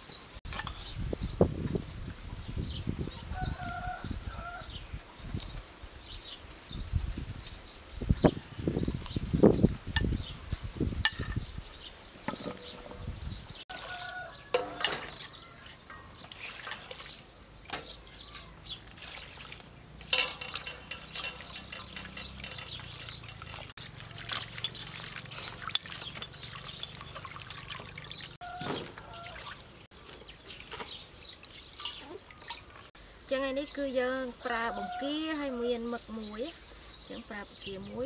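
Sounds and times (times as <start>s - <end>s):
water splashing and trickling: 0.0s - 38.0s
water pouring into metal bowl: 18.9s - 28.4s.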